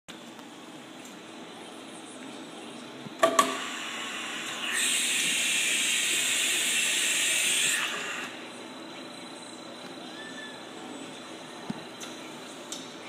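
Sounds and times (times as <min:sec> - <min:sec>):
sharp pneumatic clacks: 0:03.2 - 0:03.7.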